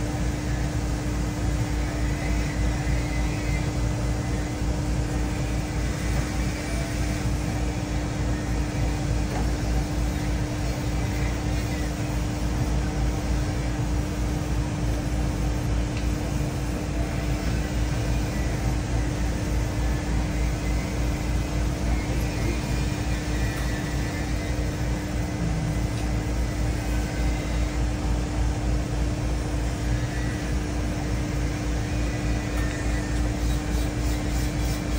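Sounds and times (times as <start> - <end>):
fan-like rushing noise: 0.0 - 34.9
machine hum: 0.0 - 34.9.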